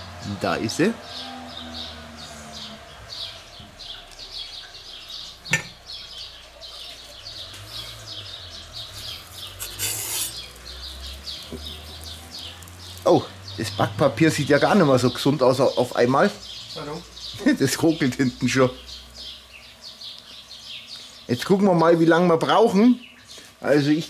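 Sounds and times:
small birds chirping: 0.0s - 24.0s
ceramic grill lid clunk: 5.4s - 5.8s
baking paper rustling: 8.8s - 13.2s.

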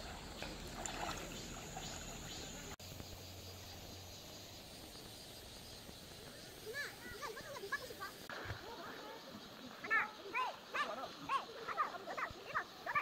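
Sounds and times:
dog splashing in water: 0.0s - 2.8s
shallow stream rushing: 0.0s - 13.0s.

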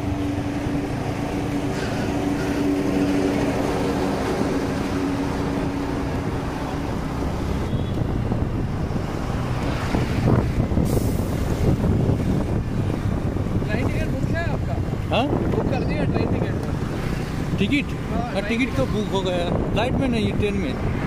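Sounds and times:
wind on microphone: 0.0s - 18.0s, 18.8s - 21.0s.

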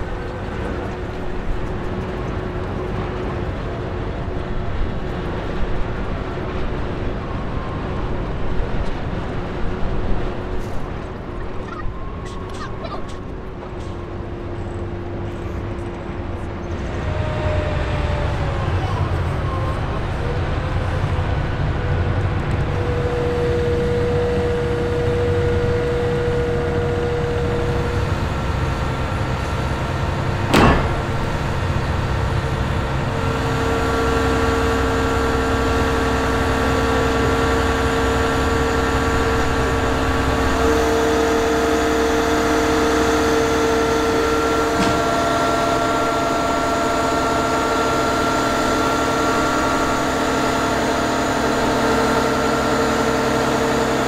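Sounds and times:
diesel engine rumble: 0.0s - 54.0s
hydraulic whining tones: 22.6s - 54.0s
sharp knock: 30.5s - 31.5s.

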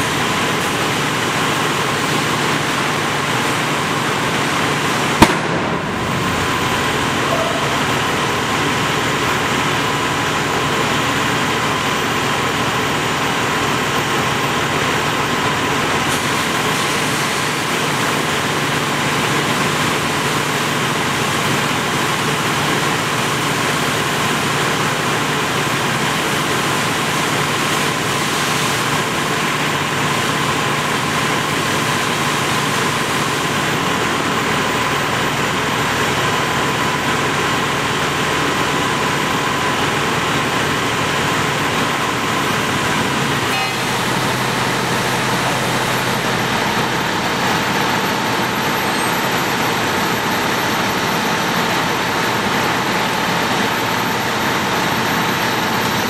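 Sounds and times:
steady hum: 0.0s - 15.5s, 39.0s - 50.8s
fire hose spraying water: 0.0s - 56.0s
sharp pop: 5.2s - 5.8s.

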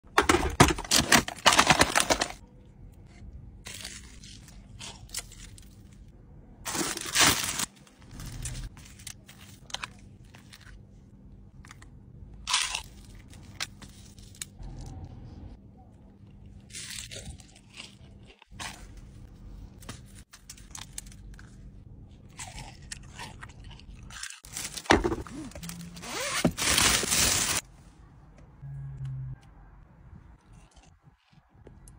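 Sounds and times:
foil crinkling and tearing: 0.6s - 2.4s, 6.7s - 10.6s, 24.1s - 27.6s
foil and wrapping crackles: 0.9s - 2.4s, 6.7s - 10.7s, 24.3s - 27.6s.

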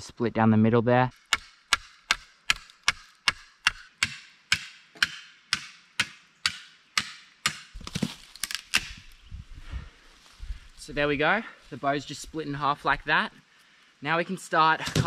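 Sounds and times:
wood splitting cracks: 6.4s - 9.2s, 14.8s - 15.0s.

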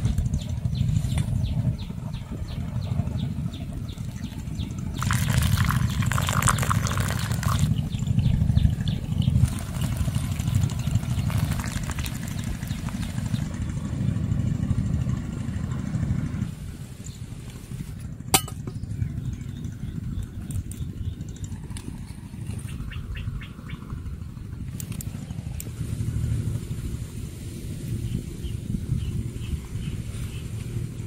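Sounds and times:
water pouring onto coffee grounds: 5.0s - 7.9s, 9.4s - 13.5s.

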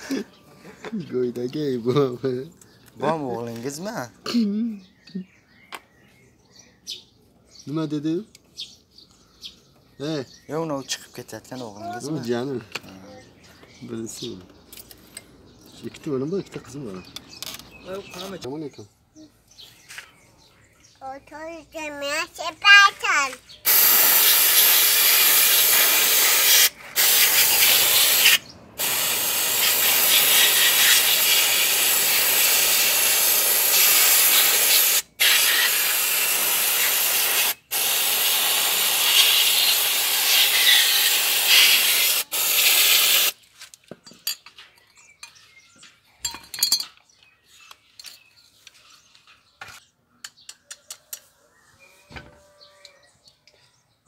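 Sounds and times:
aerosol can spraying hiss: 23.7s - 43.4s.

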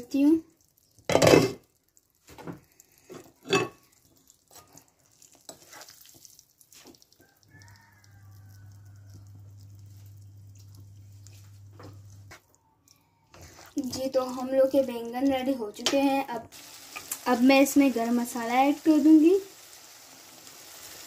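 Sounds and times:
spatula scraping in frying pan: 3.2s - 6.2s
low steady hum: 8.6s - 12.3s.

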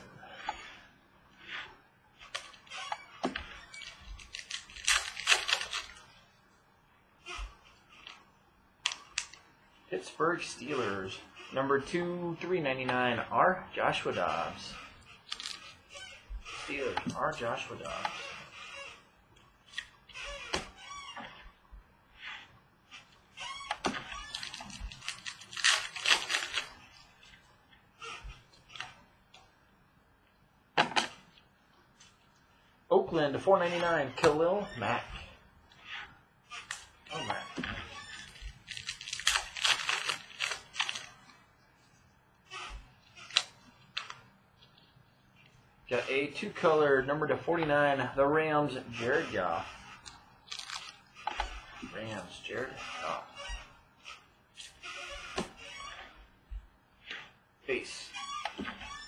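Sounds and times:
trading cards rustling and clicking: 3.3s - 6.0s, 14.2s - 15.9s, 23.8s - 26.8s, 36.7s - 41.4s.

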